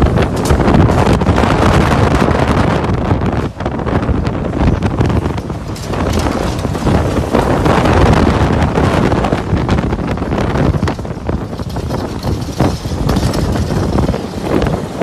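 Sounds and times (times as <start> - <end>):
strong wind buffeting microphone: 0.0 - 15.0.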